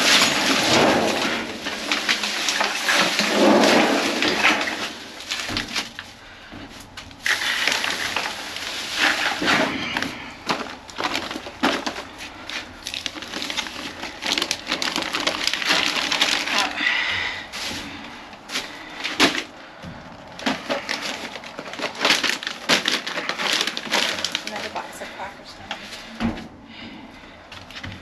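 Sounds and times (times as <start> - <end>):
plastic bags rustling and crinkling: 0.0 - 28.0.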